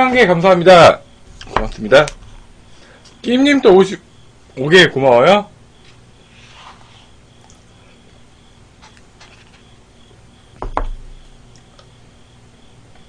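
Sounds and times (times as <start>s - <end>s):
cup set down on table: 10.6s - 11.0s.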